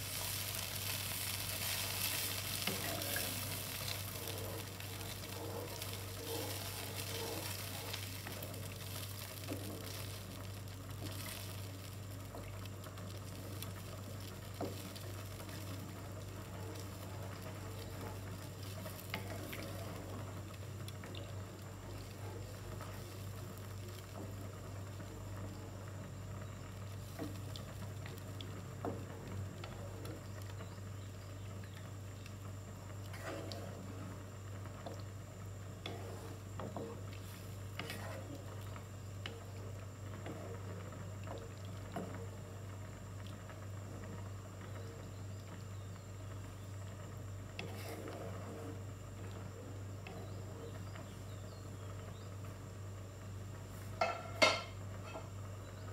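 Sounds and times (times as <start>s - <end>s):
cheese sauce bubbling and sizzling: 0.0s - 55.9s
wooden spatula scraping a pan: 0.1s - 10.2s, 33.1s - 33.8s, 35.8s - 38.4s, 47.6s - 48.8s.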